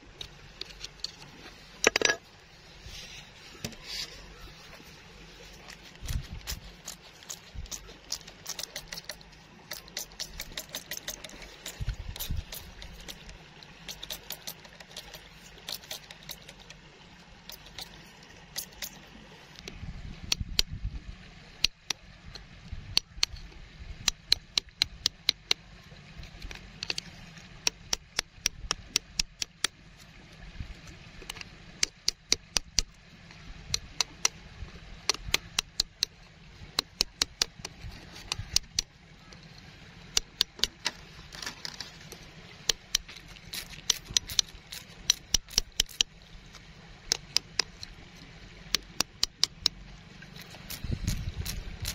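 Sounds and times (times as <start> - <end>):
digging tool scraping gravel: 5.4 - 16.7, 40.4 - 46.0.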